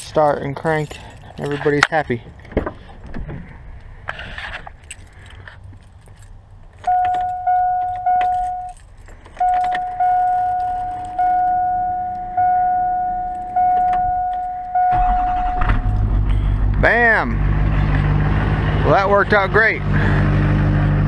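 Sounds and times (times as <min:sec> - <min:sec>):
keys jangling: 0:00.7 - 0:02.0, 0:04.7 - 0:11.2
dashboard warning chime dinging: 0:06.8 - 0:08.8, 0:09.4 - 0:16.1.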